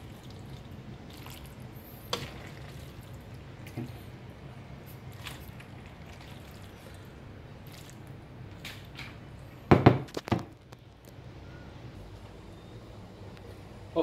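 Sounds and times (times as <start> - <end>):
wet squishing: 0.0 - 4.1, 4.8 - 9.3
low steady hum: 0.0 - 14.0.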